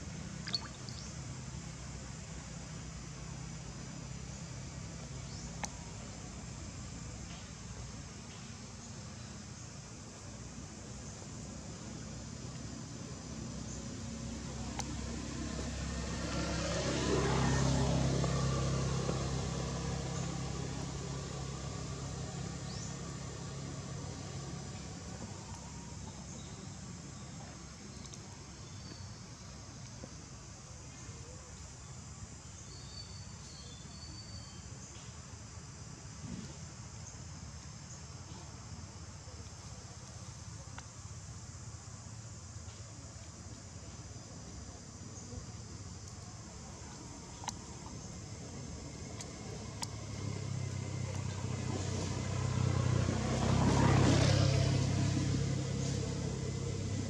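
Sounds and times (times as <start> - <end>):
faint high chirps: 0.3 - 1.3
vehicle passing by: 13.7 - 26.3, 46.9 - 57.0.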